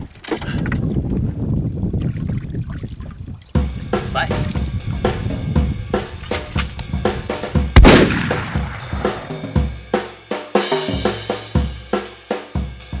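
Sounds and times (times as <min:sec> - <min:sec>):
backing music with drum beat: 0:03.6 - 0:13.0.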